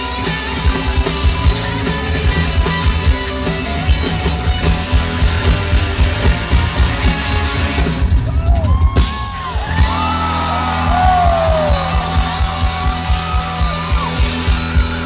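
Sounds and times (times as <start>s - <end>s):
drum kit: 0.0s - 15.0s
live rock band playing: 0.0s - 15.0s
crowd voices yelling: 7.2s - 15.0s.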